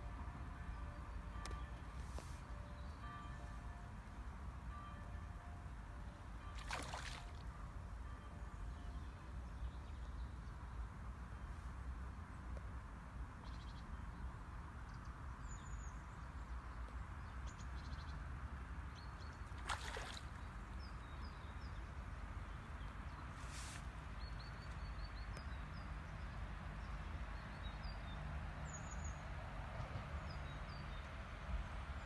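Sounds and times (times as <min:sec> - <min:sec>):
wind: 0:00.0 - 0:32.0
water splashes: 0:06.6 - 0:07.4, 0:19.6 - 0:20.5
flowing water rumble: 0:06.6 - 0:07.5.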